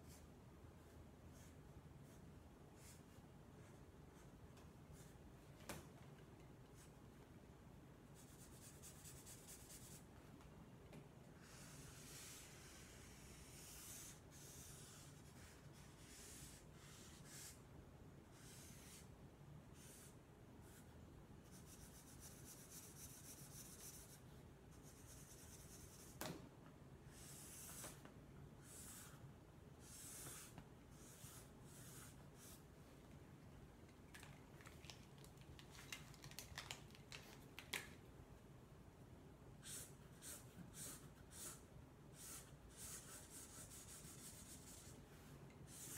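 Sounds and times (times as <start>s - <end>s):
markers scratching on paper: 8.2s - 10.0s, 11.4s - 17.6s, 18.3s - 19.1s, 19.8s - 20.9s, 21.5s - 24.2s, 24.8s - 26.2s, 27.1s - 28.0s, 28.6s - 29.2s, 29.8s - 32.6s, 39.6s - 45.0s, 45.7s - 45.9s.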